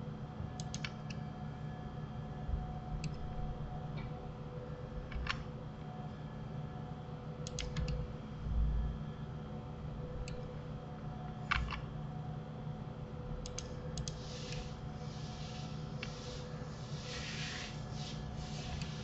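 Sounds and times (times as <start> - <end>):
steady low hum: 0.0 - 19.0
keyboard and mouse clicking: 0.6 - 1.2, 7.4 - 8.0, 13.4 - 14.2.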